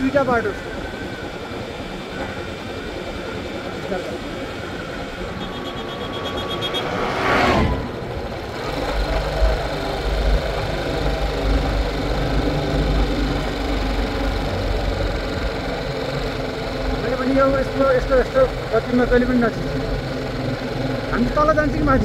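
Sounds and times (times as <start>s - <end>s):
motorcycle engine running: 0.0s - 22.0s
vehicle passing by: 4.8s - 15.2s.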